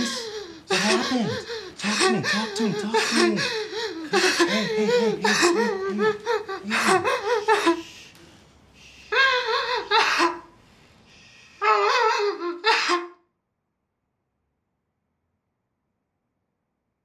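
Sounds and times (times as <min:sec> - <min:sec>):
people laughing: 0:00.0 - 0:07.8.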